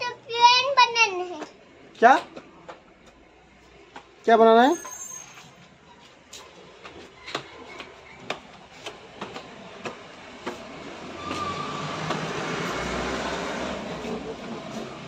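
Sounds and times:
footsteps on concrete stairs: 0:01.4 - 0:12.8.

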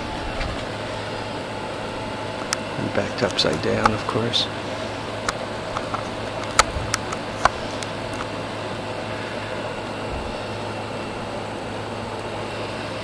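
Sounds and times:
mechanical hum with hiss: 0:00.0 - 0:13.0.

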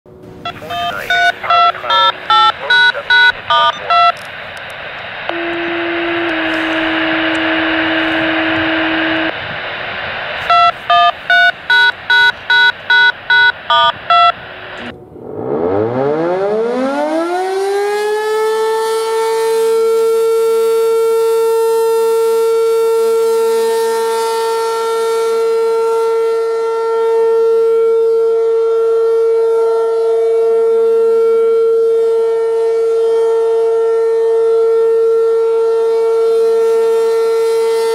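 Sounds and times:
radio hiss: 0:00.4 - 0:14.9
touch-tone beeps: 0:00.5 - 0:04.2, 0:10.5 - 0:14.9
warning siren winding up: 0:10.4 - 0:22.4.

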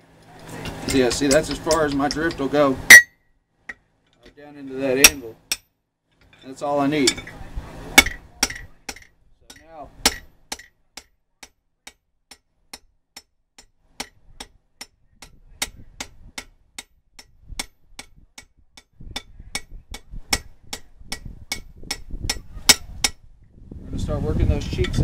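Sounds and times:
hammer striking steel on anvil: 0:00.9 - 0:03.1, 0:05.0 - 0:05.7, 0:08.0 - 0:23.2.

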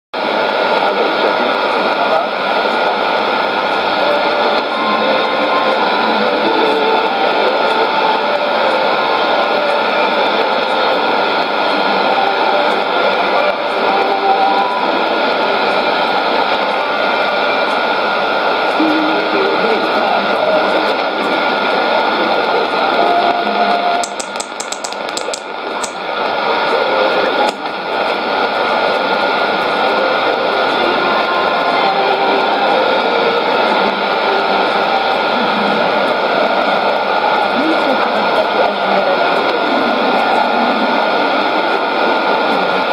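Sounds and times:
faint radio music: 0:00.2 - 0:42.9
radio static and hiss: 0:00.2 - 0:42.9
rapid clicks: 0:24.0 - 0:26.1.

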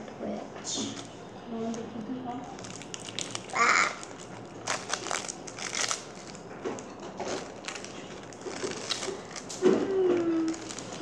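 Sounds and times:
plastic wrapper crinkling: 0:02.4 - 0:11.0.

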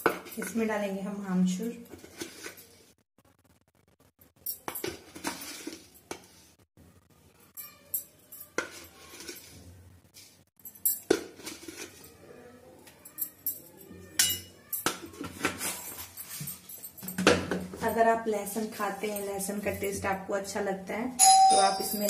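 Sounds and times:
spoon clinking on metal pan: 0:14.2 - 0:15.0.

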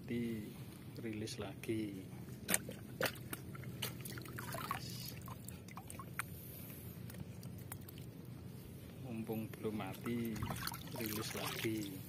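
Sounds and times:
water splashing: 0:02.5 - 0:06.1, 0:10.0 - 0:11.9
water pouring trickle: 0:04.0 - 0:06.1, 0:10.1 - 0:12.0.

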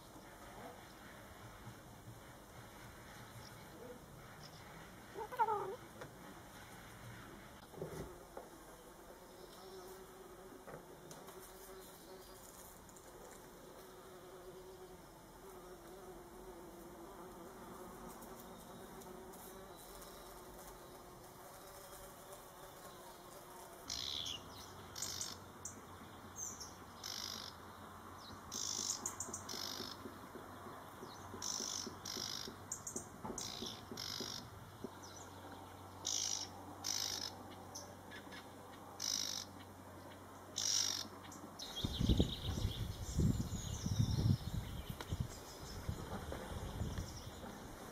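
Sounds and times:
fly buzzing faintly: 0:00.0 - 0:47.9
songbird chirping: 0:23.9 - 0:47.8.

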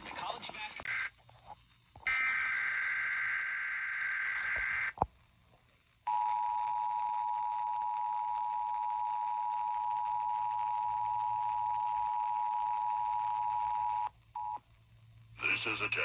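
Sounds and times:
radio hiss: 0:15.3 - 0:16.0.

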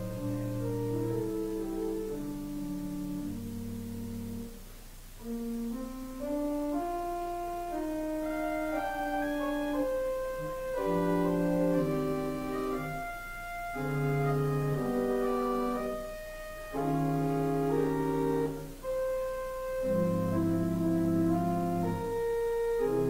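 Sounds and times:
organ music: 0:00.0 - 0:23.0.

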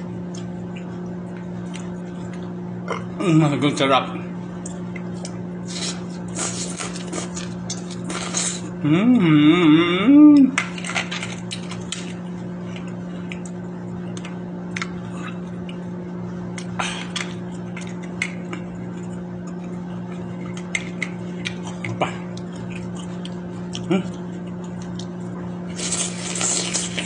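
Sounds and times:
steady low hum: 0:00.0 - 0:27.0
chewing noises: 0:04.6 - 0:08.8, 0:10.6 - 0:15.9, 0:16.5 - 0:27.0.

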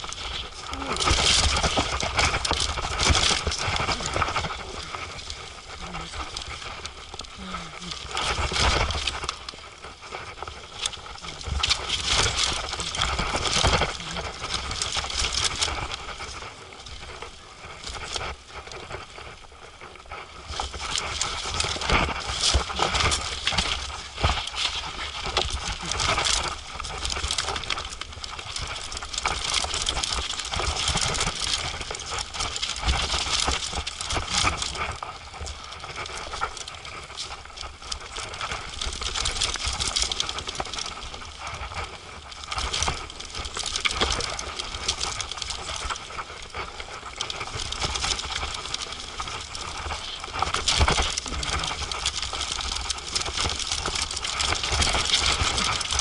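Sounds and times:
steady low rumble: 0:00.0 - 0:29.1, 0:51.0 - 0:53.3
mountain bike clattering and rattling: 0:00.0 - 0:56.0.

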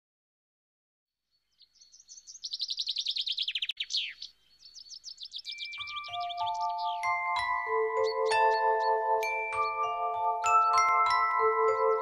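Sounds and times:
songbird singing rapid trills: 0:01.2 - 0:11.0
mallet instrument music: 0:05.6 - 0:12.0.

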